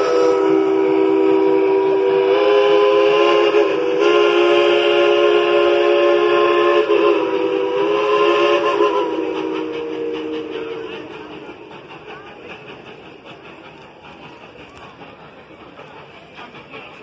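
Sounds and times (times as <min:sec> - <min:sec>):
steam locomotive whistle blast: 0:00.0 - 0:11.8.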